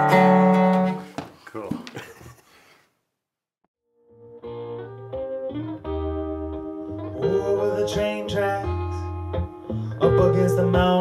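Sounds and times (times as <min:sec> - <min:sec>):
guitar-led song with bass: 0:00.0 - 0:01.1, 0:04.1 - 0:11.0.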